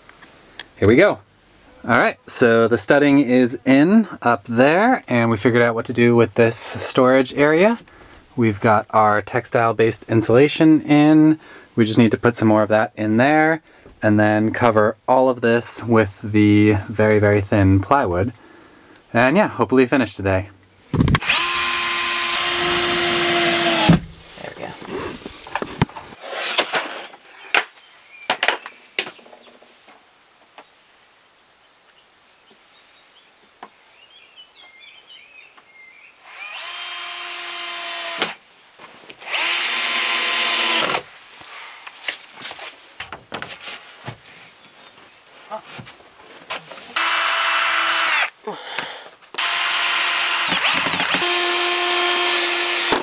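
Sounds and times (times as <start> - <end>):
power drill driving screws: 21.2 - 24.2, 36.2 - 38.4, 39.2 - 41.0, 47.0 - 48.4, 49.4 - 53.0.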